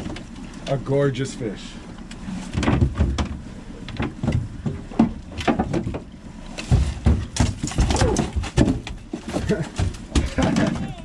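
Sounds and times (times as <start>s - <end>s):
fish thrashing against boat: 2.1s - 11.0s.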